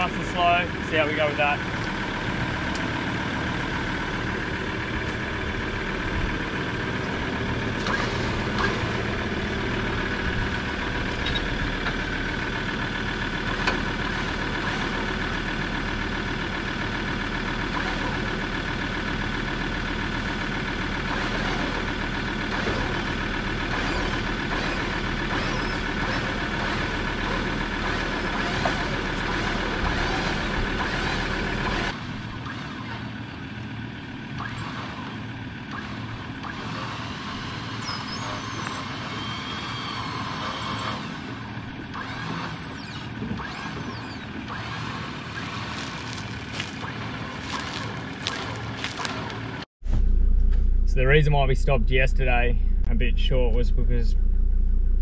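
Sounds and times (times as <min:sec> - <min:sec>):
vehicle engine running: 0:00.0 - 0:55.0
winch running: 0:20.4 - 0:33.1, 0:34.4 - 0:49.7.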